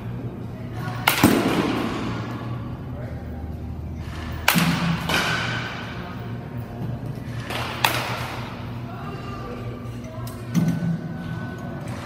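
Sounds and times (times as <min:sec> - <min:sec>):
bat cracking against ball: 0:04.1 - 0:05.8, 0:07.4 - 0:08.5.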